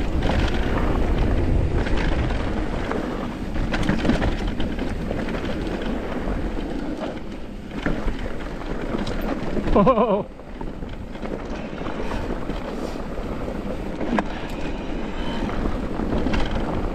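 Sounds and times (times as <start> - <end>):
bike clicks and rattles: 0.0 - 16.9
tyres rolling on dirt: 0.0 - 16.9.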